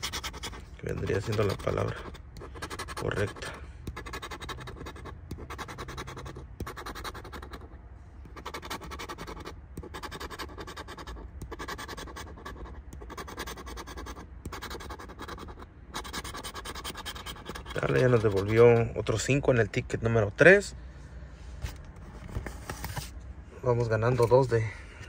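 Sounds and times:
scratcher rasping on ticket: 0.0s - 18.9s.

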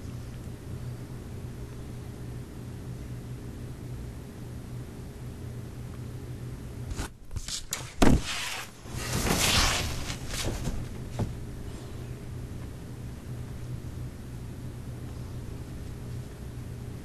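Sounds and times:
low room hum: 0.0s - 17.0s
rustling: 7.5s - 11.4s.

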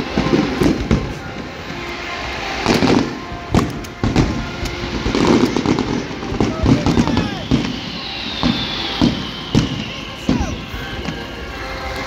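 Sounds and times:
fireworks crackling: 0.0s - 12.0s
firework shells bursting: 2.5s - 12.0s.

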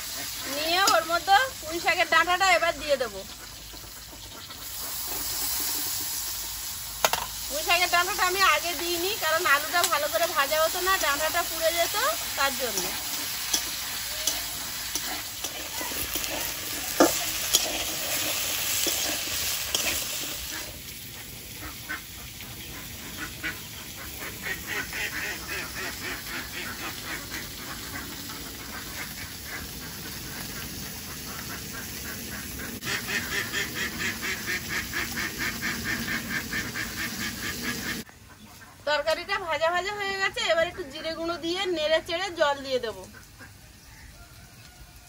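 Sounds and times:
vegetables sizzling in oil: 0.0s - 38.1s, 38.8s - 45.0s
metal spatula clicking: 12.8s - 16.4s.

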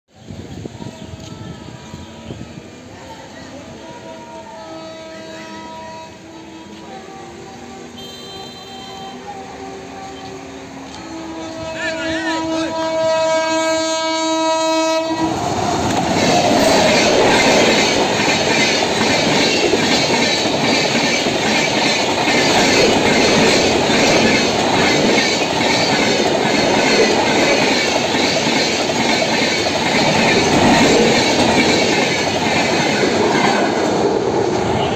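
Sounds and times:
locomotive horn: 4.3s - 17.8s, 34.5s - 34.9s
train wheels rushing on rails: 10.2s - 34.9s.

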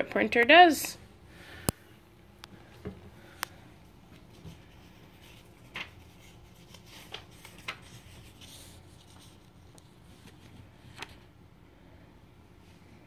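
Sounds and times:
paper and hand rustles: 4.2s - 11.3s.

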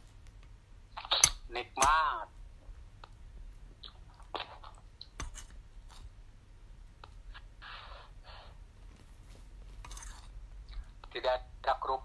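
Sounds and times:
spoon scraping a plate: 9.8s - 10.4s.

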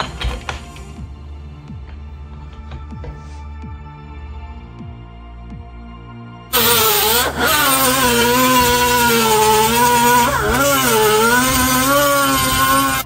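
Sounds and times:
power tool running hard: 6.5s - 13.0s.

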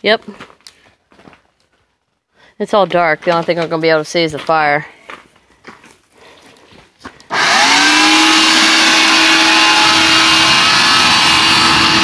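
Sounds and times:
leaf blower motor whine: 7.3s - 12.0s
rush of air: 7.5s - 12.0s.

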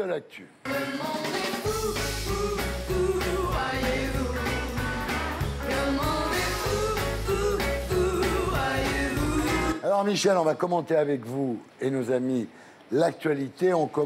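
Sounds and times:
upbeat rock jingle with singing: 0.6s - 9.8s.

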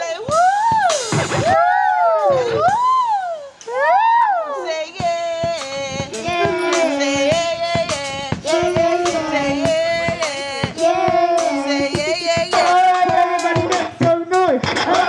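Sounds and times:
woman and children singing: 0.0s - 1.0s, 4.3s - 15.0s.

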